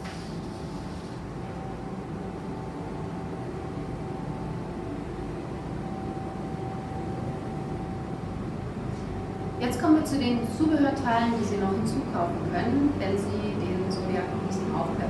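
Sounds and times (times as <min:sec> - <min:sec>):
thin constant whine: 0:00.0 - 0:15.0.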